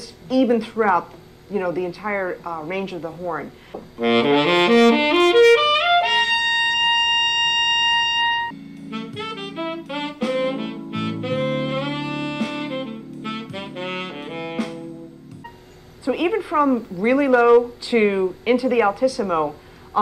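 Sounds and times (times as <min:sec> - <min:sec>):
tenor saxophone playing: 0:04.0 - 0:15.6.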